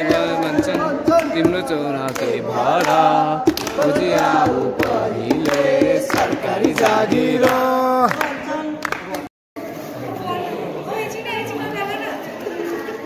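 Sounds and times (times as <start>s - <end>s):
group of voices singing in chorus: 0.0s - 8.4s
hand claps: 0.0s - 9.3s.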